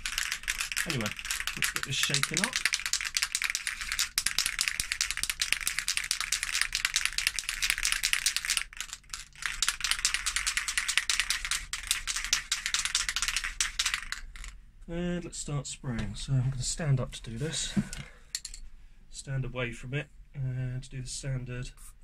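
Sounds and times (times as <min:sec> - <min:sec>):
spray can ball rattling: 0:00.0 - 0:14.6.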